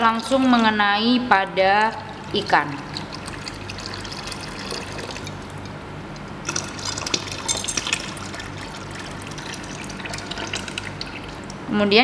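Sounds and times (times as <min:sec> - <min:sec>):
low steady hum: 0:00.0 - 0:12.0
water pouring and splashing: 0:01.8 - 0:05.7, 0:06.4 - 0:11.5.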